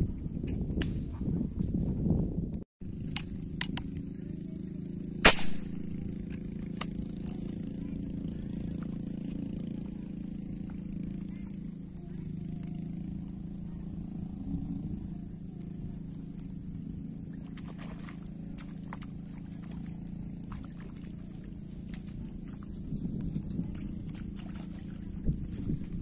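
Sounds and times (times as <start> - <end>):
steady low hum: 0.0 - 26.0
sharp loud snap: 0.8 - 1.0, 5.2 - 5.8.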